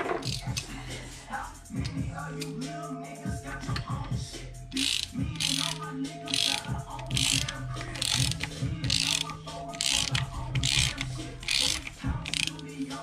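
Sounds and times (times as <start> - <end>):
socket ratchet clicking: 0.0 - 0.7, 4.7 - 13.0.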